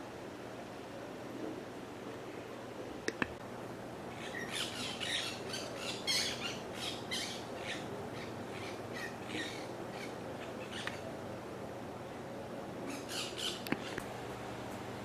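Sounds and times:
birds squawking: 0:04.1 - 0:11.1, 0:12.9 - 0:14.1.

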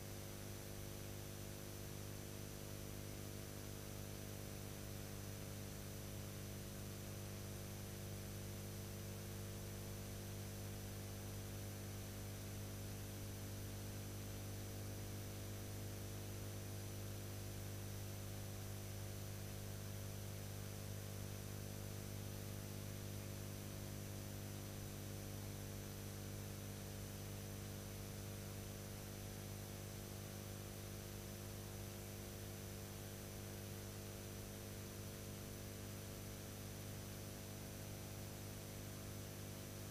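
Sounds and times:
electrical mains hum: 0:36.3 - 0:39.9.

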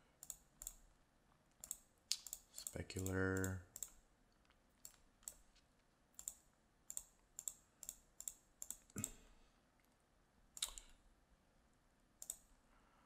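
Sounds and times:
computer mouse clicks: 0:00.2 - 0:00.8, 0:01.5 - 0:05.4, 0:06.2 - 0:09.2, 0:10.6 - 0:11.0, 0:12.2 - 0:12.5.

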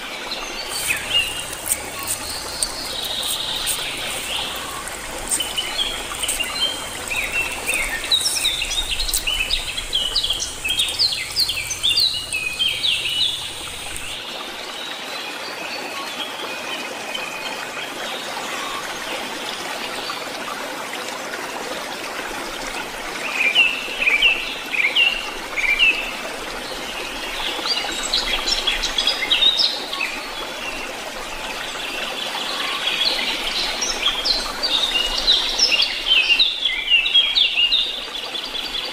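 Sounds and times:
background hiss: 0:00.6 - 0:14.2
birds chirping: 0:00.6 - 0:14.2.

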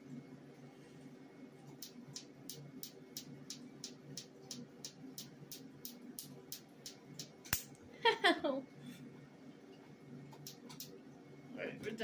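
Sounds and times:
steady low hum: 0:00.0 - 0:12.0
laser firing sharp snaps: 0:01.8 - 0:07.8, 0:10.4 - 0:11.0.

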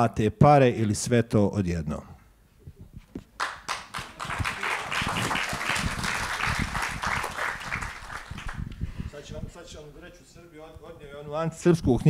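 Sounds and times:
audience applauding: 0:03.4 - 0:08.7.

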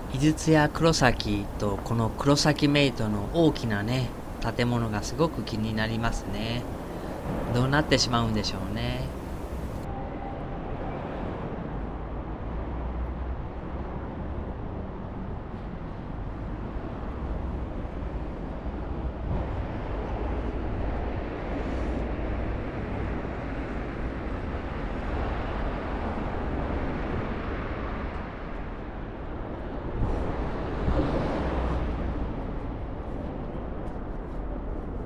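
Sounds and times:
road traffic going by: 0:00.0 - 0:35.0.

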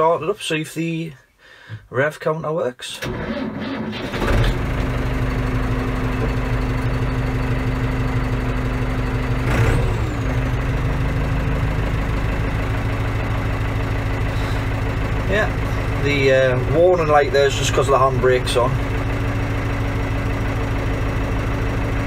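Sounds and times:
tractor diesel engine starting and idling: 0:02.8 - 0:22.0.

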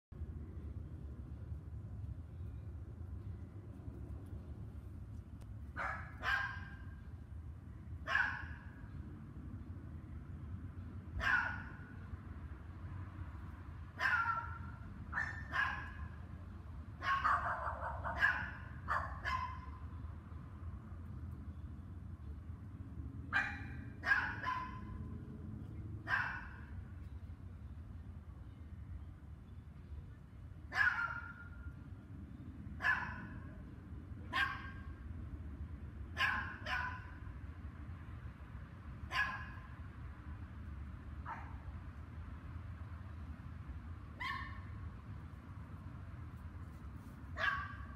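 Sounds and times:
dogs barking: 0:05.8 - 0:06.8, 0:08.1 - 0:08.8, 0:11.2 - 0:11.8, 0:14.0 - 0:16.1, 0:17.0 - 0:19.8, 0:23.3 - 0:25.0, 0:26.0 - 0:26.7, 0:30.7 - 0:31.5, 0:32.8 - 0:33.4, 0:34.3 - 0:34.9, 0:36.2 - 0:37.2, 0:39.1 - 0:39.7, 0:47.4 - 0:47.9.

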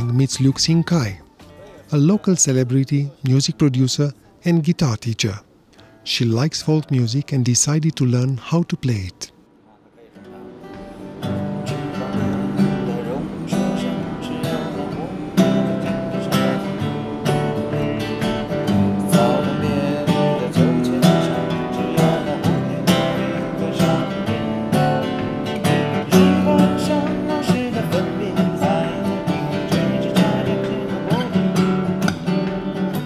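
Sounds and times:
acoustic guitars strumming: 0:10.0 - 0:33.0.

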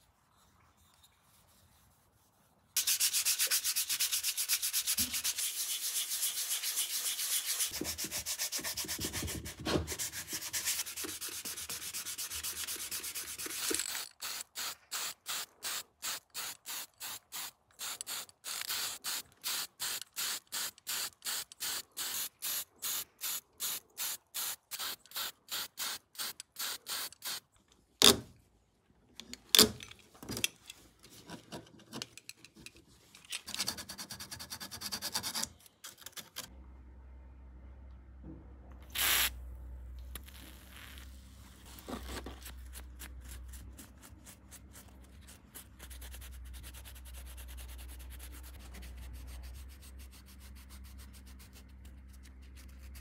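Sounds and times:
sanding sponge rubbing: 0:01.2 - 0:13.7
spray can hisses: 0:39.0 - 0:39.3.

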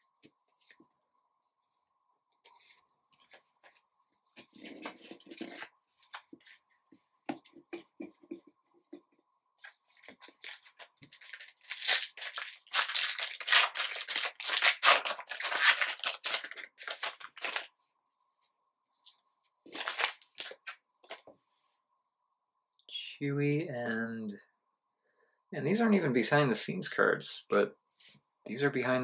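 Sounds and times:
cards rustling: 0:09.6 - 0:17.7, 0:19.7 - 0:21.3
wrapper tearing and crinkling: 0:10.4 - 0:17.7, 0:19.7 - 0:20.7.

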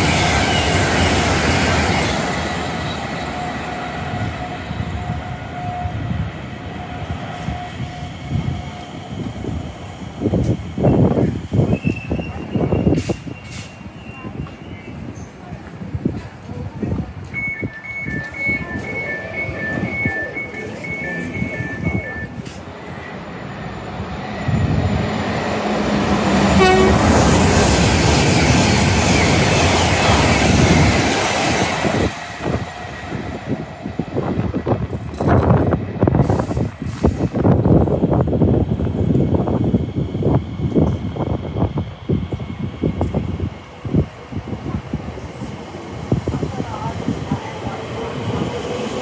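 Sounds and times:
train rumble: 0:00.0 - 0:49.0
train horn toot: 0:26.4 - 0:27.4.

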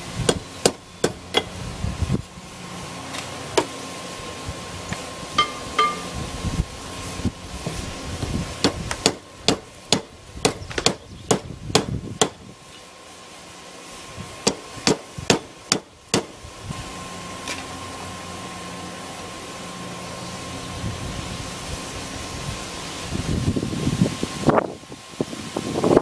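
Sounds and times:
steady hum: 0:00.0 - 0:26.0
hammer striking steel on anvil: 0:05.4 - 0:06.1.

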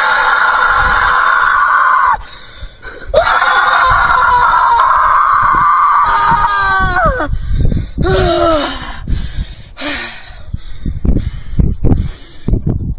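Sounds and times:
boy screaming like a car: 0:00.0 - 0:02.2, 0:03.2 - 0:07.3, 0:08.0 - 0:08.8.

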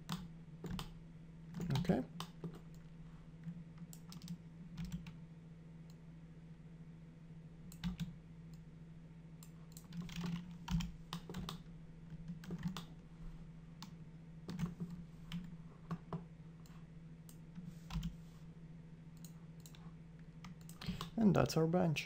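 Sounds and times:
steady low hum: 0:00.0 - 0:22.0
keyboard and mouse clicks: 0:03.8 - 0:05.2, 0:09.4 - 0:12.9, 0:13.8 - 0:18.2, 0:20.4 - 0:21.2.

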